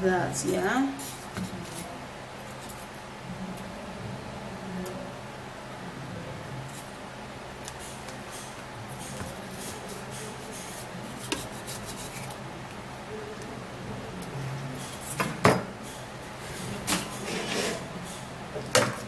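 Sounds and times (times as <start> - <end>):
low steady hum: 0.0 - 19.0
knife scraping melon rind: 7.9 - 12.4, 17.1 - 17.9.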